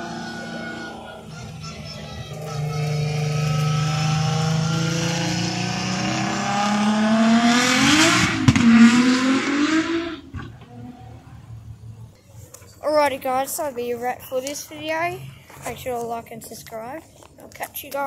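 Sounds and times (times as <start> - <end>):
car engine revving: 0.0 - 10.7.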